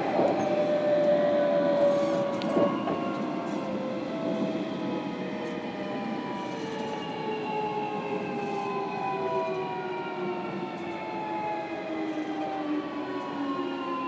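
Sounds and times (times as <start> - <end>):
wheels rumbling on rail: 0.0 - 14.0.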